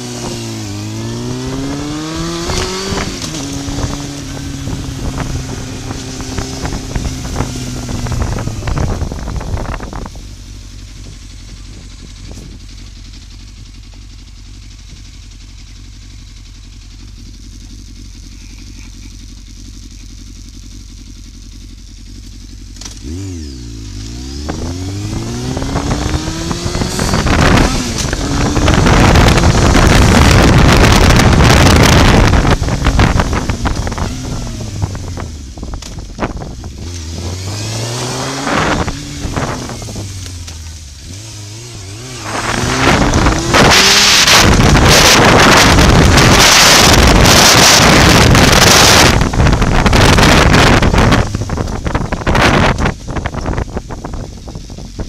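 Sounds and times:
wind rush on microphone: 0.0s - 12.8s, 24.2s - 40.5s, 41.1s - 55.0s
motorcycle engine revving: 0.0s - 55.0s.

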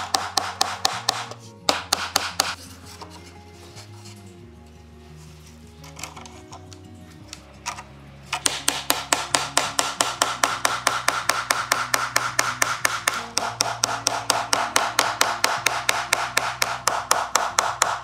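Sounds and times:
small hammer tapping on wood: 0.0s - 2.6s, 8.4s - 18.0s.

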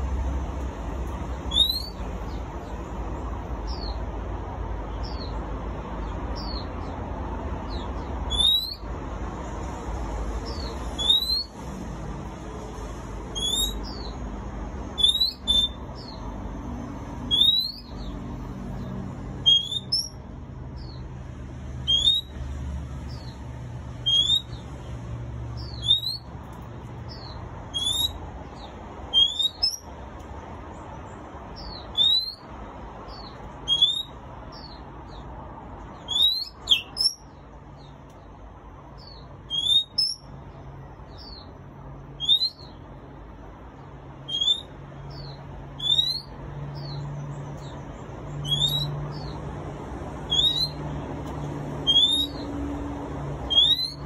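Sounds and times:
songbird whistling calls: 1.5s - 2.0s, 7.7s - 8.8s, 10.5s - 11.5s, 13.4s - 14.2s, 15.0s - 16.2s, 17.3s - 18.1s, 19.4s - 20.2s, 21.8s - 22.3s, 24.0s - 24.6s, 25.6s - 26.3s, 27.1s - 29.9s, 31.6s - 32.4s, 33.1s - 34.8s, 36.0s - 37.2s, 39.0s - 40.3s, 42.2s - 42.7s, 44.3s - 47.0s, 48.4s - 49.3s, 50.3s - 50.8s, 51.8s - 52.5s, 53.5s - 54.0s.

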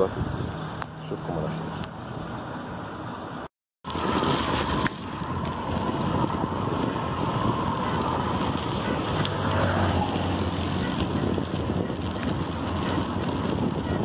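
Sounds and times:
wind buffeting microphone: 0.0s - 1.0s, 3.8s - 14.0s.

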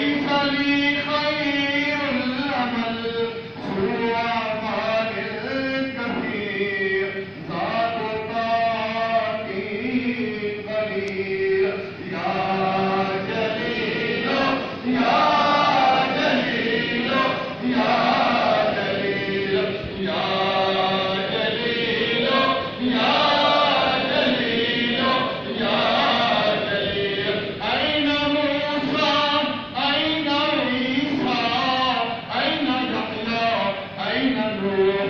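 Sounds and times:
men chanting together: 8.8s - 35.0s.

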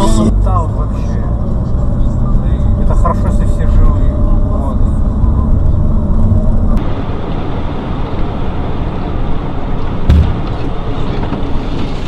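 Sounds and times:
car engine and road rumble: 0.0s - 12.0s
short thump: 10.1s - 10.7s.

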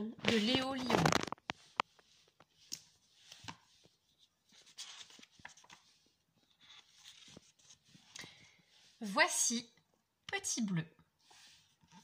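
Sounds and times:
book being opened: 0.2s - 8.3s
paper pages turning: 0.2s - 8.4s.

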